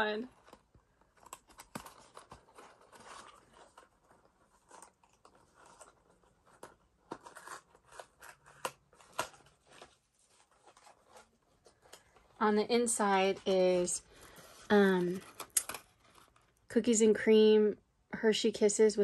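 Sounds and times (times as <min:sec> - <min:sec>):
paper and card crinkling: 0:00.0 - 0:16.7
sharp clicks and snaps: 0:15.4 - 0:15.9.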